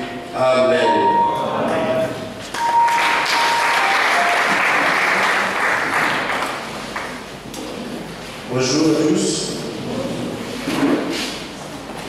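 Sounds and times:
congregation clapping: 2.4 - 7.4.

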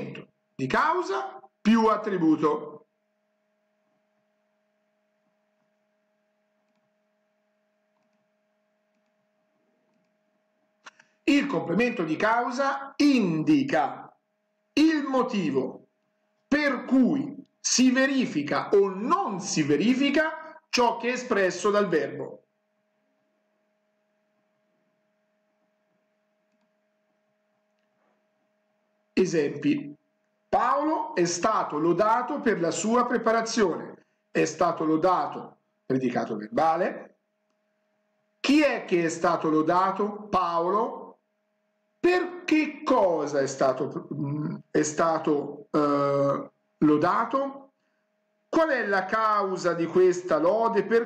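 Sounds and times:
faint electrical hum: 0.0 - 51.0.

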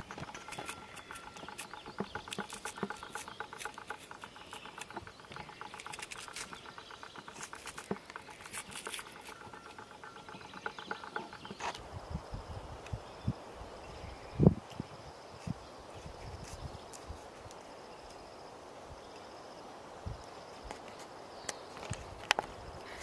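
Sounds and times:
rapid ticking trill: 0.0 - 11.8.

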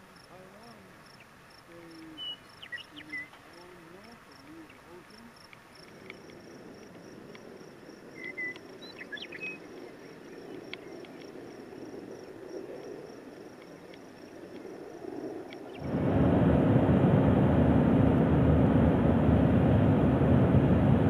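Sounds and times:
insect chirping: 0.0 - 16.0
faint outdoor rush: 0.0 - 21.0
bird chirps: 2.0 - 3.6, 8.2 - 11.2.

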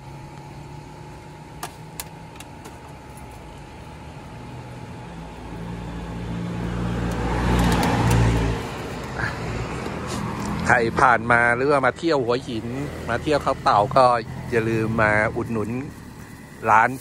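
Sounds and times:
vehicle passing on road: 4.5 - 17.0.

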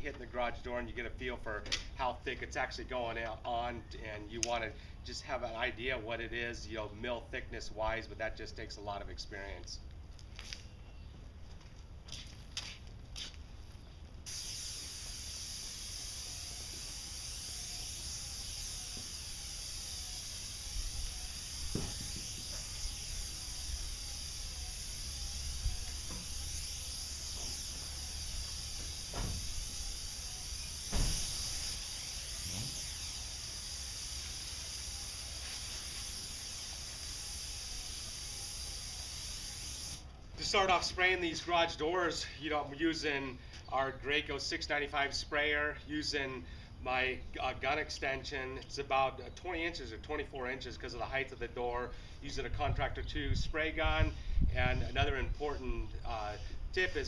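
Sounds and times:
paint sprayer hissing: 14.2 - 40.1.

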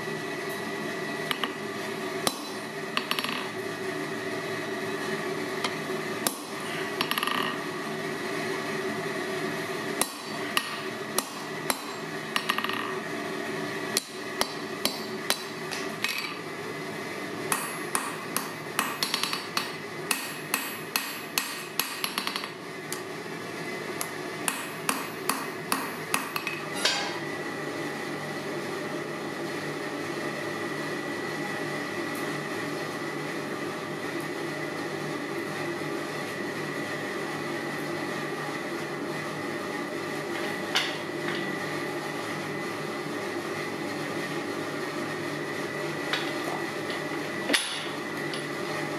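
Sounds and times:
steady hum: 0.0 - 48.9
hammer striking steel on anvil: 47.5 - 48.0.

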